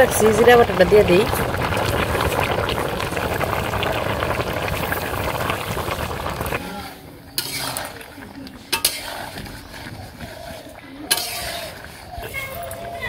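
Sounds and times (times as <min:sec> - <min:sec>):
curry bubbling in a pan: 0:00.0 - 0:13.0
spatula scraping a pan: 0:06.6 - 0:13.0.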